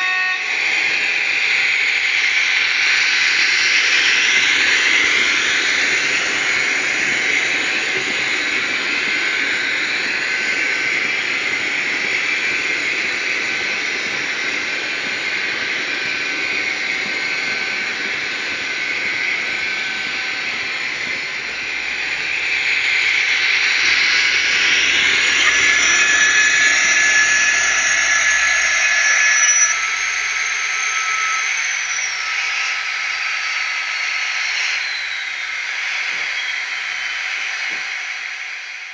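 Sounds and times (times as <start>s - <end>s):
high whine falling in pitch: 0.0s - 38.9s
wagons rolling on track: 2.7s - 30.7s.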